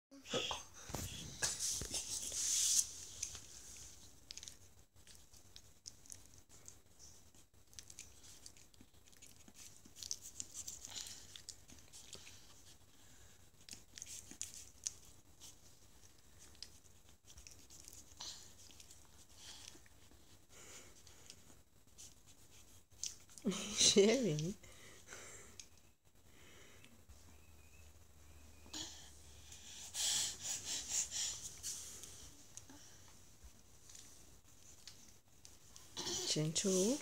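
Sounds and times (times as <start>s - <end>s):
puppy licking and chewing: 1.1s - 20.4s, 21.0s - 23.5s, 33.4s - 36.0s.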